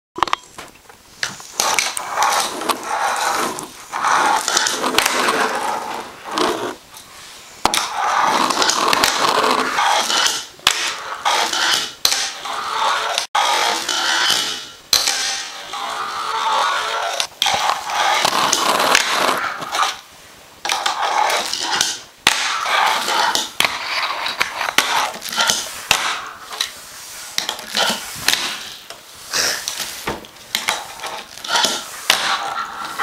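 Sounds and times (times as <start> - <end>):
fingerboard rolling and scraping: 1.2 - 6.8, 7.6 - 33.0.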